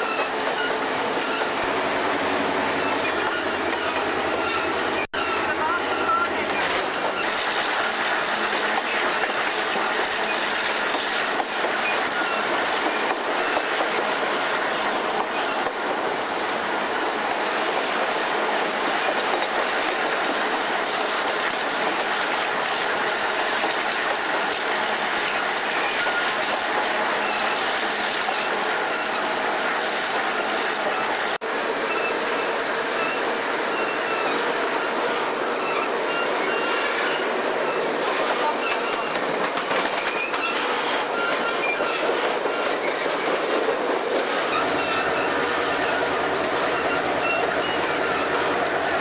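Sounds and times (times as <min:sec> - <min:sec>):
faint wheel squeal: 0:00.0 - 0:08.0, 0:09.9 - 0:13.8, 0:27.1 - 0:29.7, 0:31.8 - 0:43.6, 0:44.4 - 0:48.6
clickety-clack of rail joints: 0:00.0 - 0:49.0
train wheels on rails: 0:00.0 - 0:49.0.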